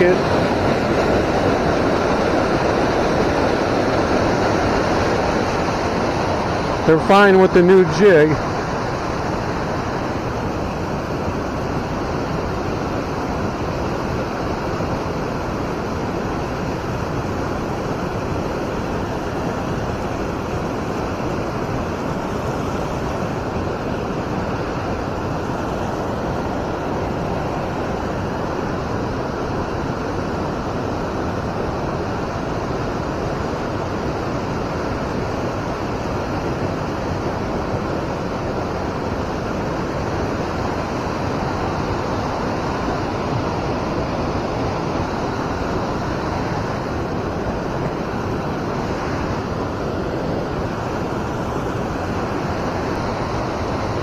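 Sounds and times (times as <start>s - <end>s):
flowing river water rushing: 0.0s - 54.0s.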